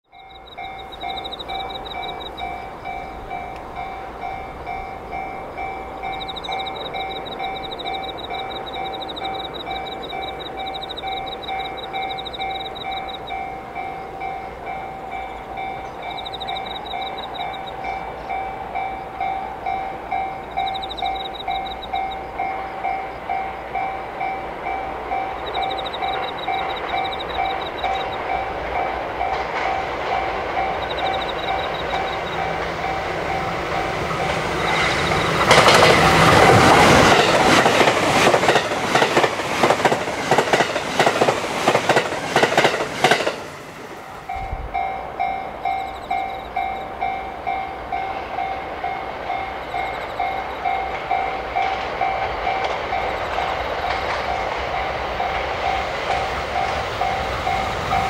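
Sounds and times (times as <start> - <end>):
approaching electric train: 0.0 - 58.0
level crossing bell ringing: 0.1 - 28.5.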